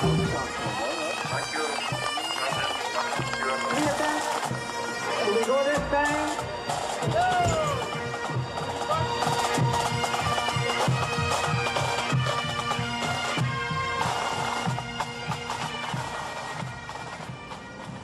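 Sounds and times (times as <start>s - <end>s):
drumbeat: 0.0s - 4.6s, 5.3s - 10.2s
bagpipes with drones: 0.0s - 18.0s.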